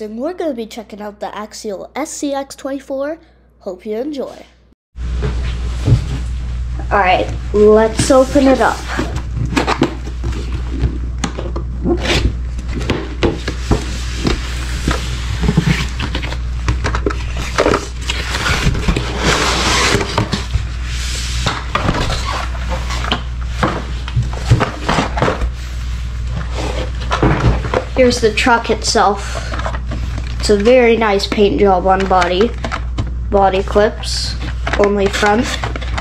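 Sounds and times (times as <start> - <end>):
steady low hum: 5.0 - 36.0
cardboard rubbing and scraping: 7.0 - 11.0, 11.9 - 31.7.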